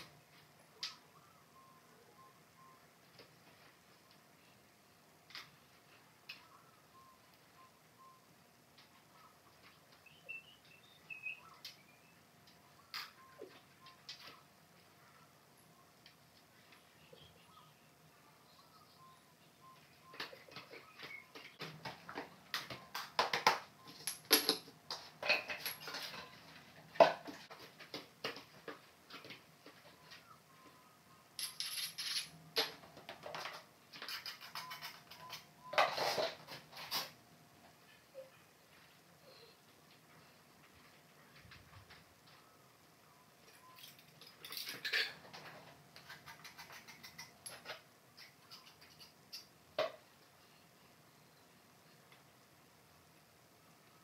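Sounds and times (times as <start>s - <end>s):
hand tools being handled: 23.1s - 26.4s, 31.4s - 37.2s, 43.5s - 49.5s
ceramic tile pieces clinking: 31.4s - 32.4s.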